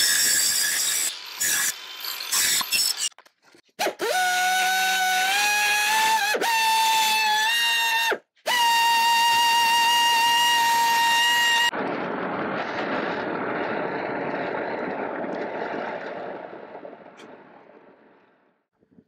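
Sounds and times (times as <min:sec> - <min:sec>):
pneumatic circular saw whining: 0:00.0 - 0:07.3.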